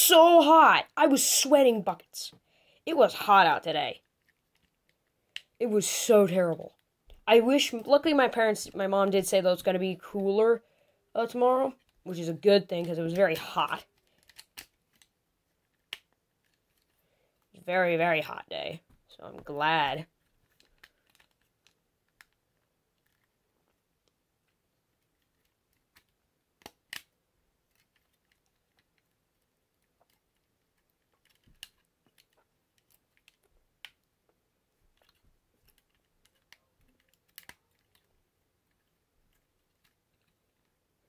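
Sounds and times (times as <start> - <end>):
plastic toy parts clicking and snapping: 12.8 - 17.0, 20.2 - 34.1, 34.9 - 40.7.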